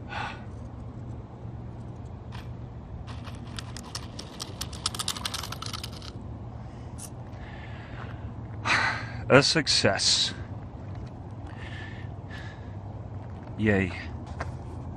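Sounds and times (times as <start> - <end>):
steady low hum: 0.0 - 14.9
gravel crunching: 0.5 - 6.2, 9.9 - 14.8.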